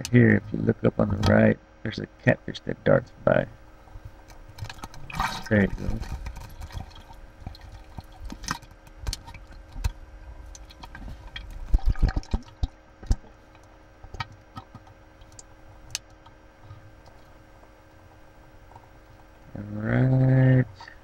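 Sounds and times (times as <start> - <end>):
water sloshing and dripping: 4.0 - 19.2.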